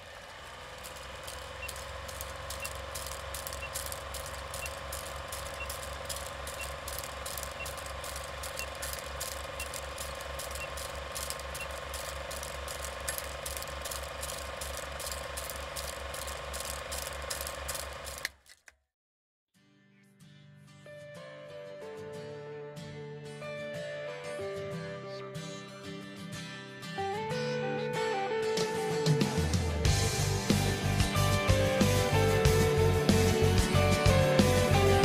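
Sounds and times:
projector hum: 0.0 - 18.4
projector mechanical clatter: 0.0 - 18.6
short high beeps: 1.6 - 1.9, 4.5 - 12.1.

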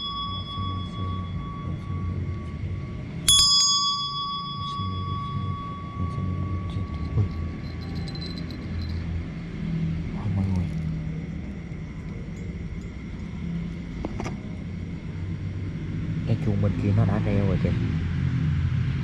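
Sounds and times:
metal hand bell ringing: 0.0 - 9.6.

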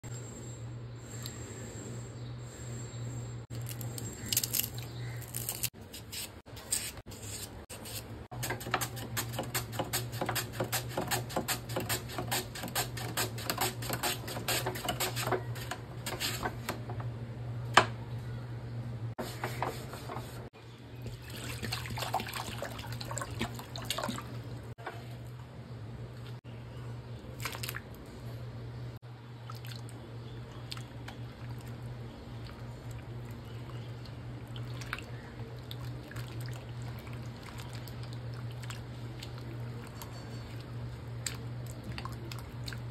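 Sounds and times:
steady low hum: 0.0 - 42.9
potato chips snapping and crunching: 3.5 - 5.7
mandoline slicer cutting potato: 5.9 - 16.5.

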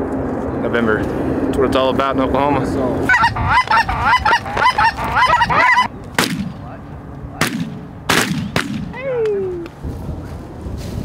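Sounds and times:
geese honking: 3.0 - 5.9
shotgun shots: 6.2 - 6.7, 7.4 - 9.0.

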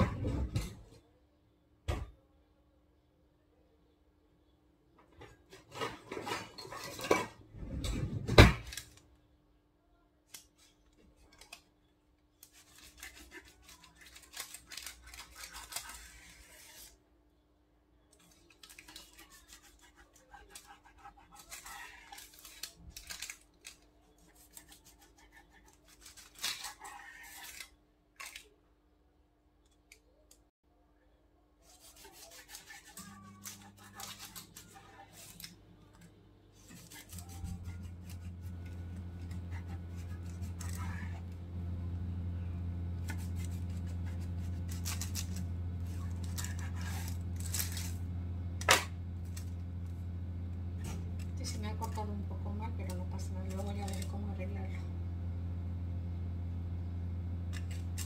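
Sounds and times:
knife rasping on baking paper: 12.4 - 17.0, 18.2 - 28.4, 31.6 - 35.5, 36.6 - 41.4, 43.0 - 48.0
knife sawing through cake: 12.4 - 17.0, 18.8 - 22.6, 24.1 - 27.7, 31.6 - 35.4, 36.6 - 41.4, 43.0 - 47.9.

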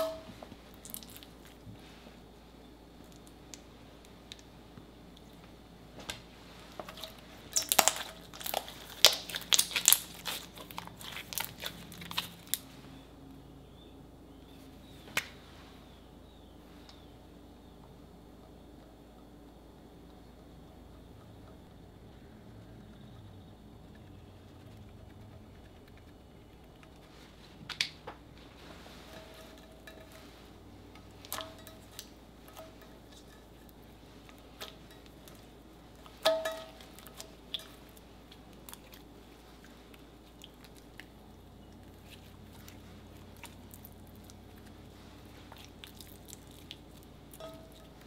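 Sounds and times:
slime squelching: 0.0 - 2.0, 6.4 - 13.0, 24.2 - 48.0.

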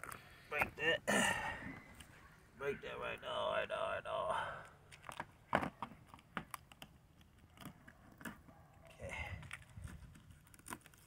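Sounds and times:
fish bones cracking: 9.4 - 11.0.

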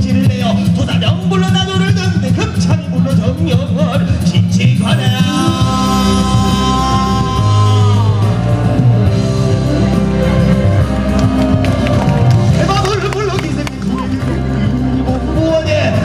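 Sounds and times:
band with heavy bass and drums: 0.0 - 16.0
person singing: 4.8 - 8.8.

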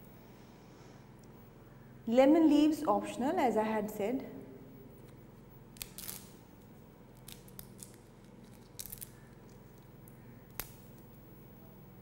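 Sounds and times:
faint steady hum: 0.0 - 12.0
leaves tearing and crackling: 5.8 - 6.4, 7.2 - 9.3.

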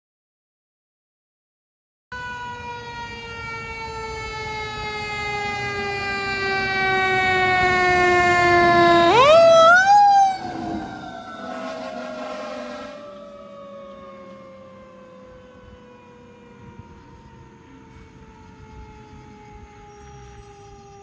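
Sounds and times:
fire engine siren: 2.1 - 21.0.

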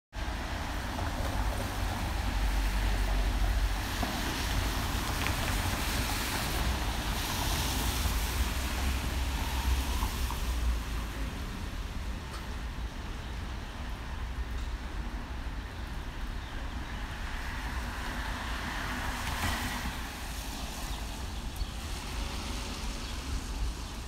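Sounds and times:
car tyres hissing on wet street: 0.2 - 12.1, 17.0 - 24.0.

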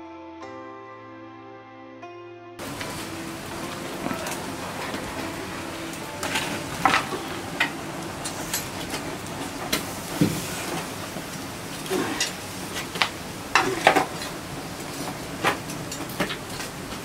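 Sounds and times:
fire crackling and popping: 2.6 - 17.0
wood fire hissing: 2.6 - 17.0.

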